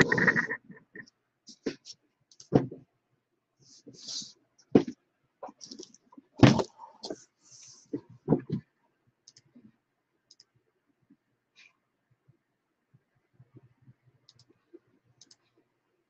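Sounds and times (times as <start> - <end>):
faint ticks: 15.2 - 15.5.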